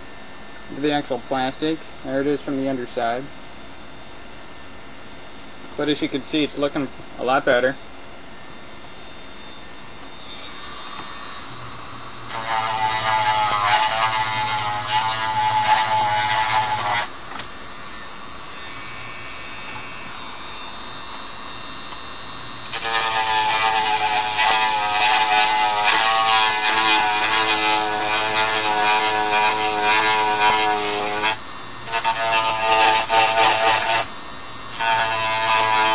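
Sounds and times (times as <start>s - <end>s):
rotary tool sanding plastic: 10.3s - 20.5s, 22.7s - 35.9s.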